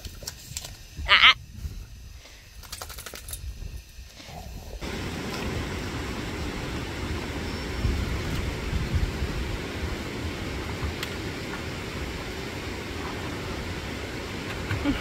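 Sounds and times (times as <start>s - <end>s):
lawn sprinkler ticking spray: 4.8s - 15.0s
river water rushing: 4.8s - 15.0s.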